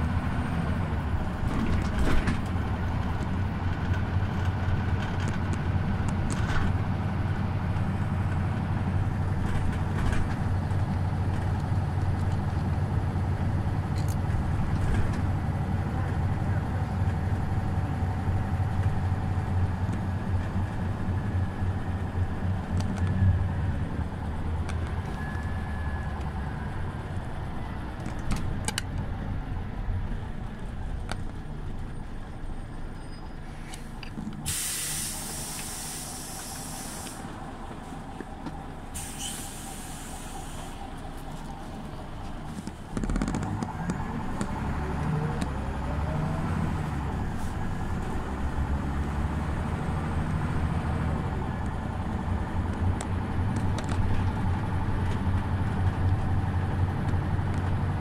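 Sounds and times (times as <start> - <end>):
bus diesel engine running: 0.0 - 58.0
compressed air hissing: 34.4 - 37.3, 38.9 - 40.8.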